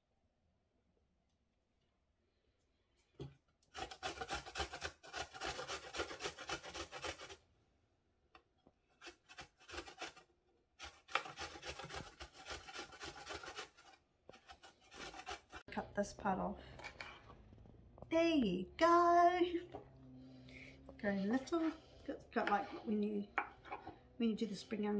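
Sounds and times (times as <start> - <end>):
ginger rasping on grater: 3.7 - 7.4, 9.0 - 15.7.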